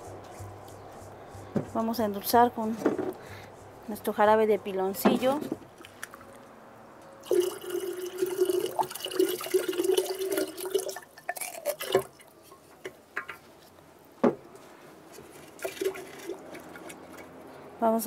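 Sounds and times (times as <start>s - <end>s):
syrup pouring into water: 7.2s - 12.2s, 15.6s - 17.2s.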